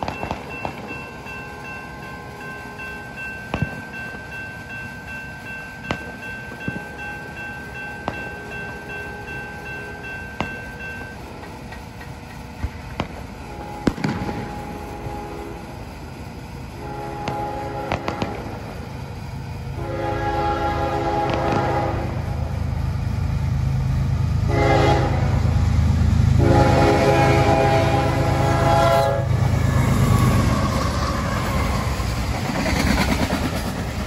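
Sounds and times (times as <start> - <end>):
steady high tone: 0.0 - 11.8, 13.4 - 21.2
locomotive horn: 13.5 - 15.7, 16.8 - 18.7, 19.7 - 22.5, 24.4 - 25.6, 26.3 - 30.7.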